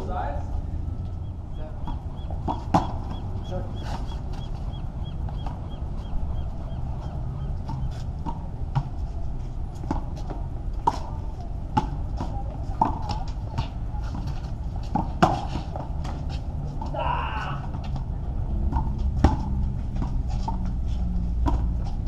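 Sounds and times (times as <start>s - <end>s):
low rumble: 0.0s - 14.0s
ball bouncing on court: 1.8s - 4.6s.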